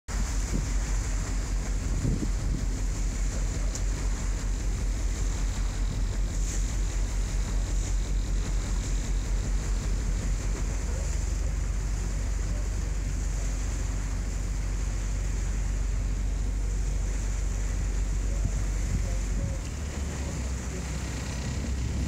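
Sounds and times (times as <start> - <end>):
hiss of water: 0.1 - 22.0
wind rumbling on microphone: 0.1 - 22.0.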